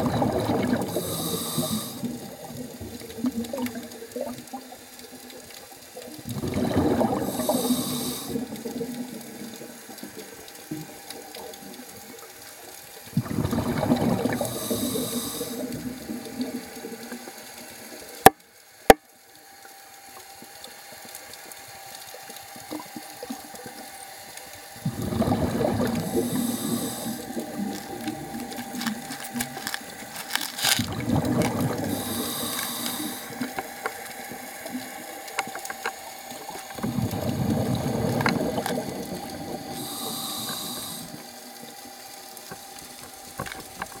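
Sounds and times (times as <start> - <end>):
exhaled bubbles underwater: 0.0 - 12.4, 13.0 - 18.3, 22.6 - 30.2, 30.8 - 41.9
regulator breathing hiss: 0.8 - 2.3, 7.2 - 8.7, 14.4 - 15.8, 25.8 - 30.8, 31.7 - 34.5, 38.7 - 41.6.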